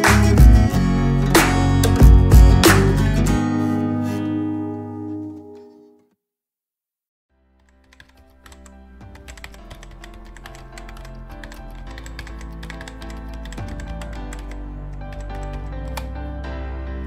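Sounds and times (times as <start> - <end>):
background music: 0.0 - 5.9, 7.4 - 17.0
keyboard typing clicks: 7.6 - 16.2.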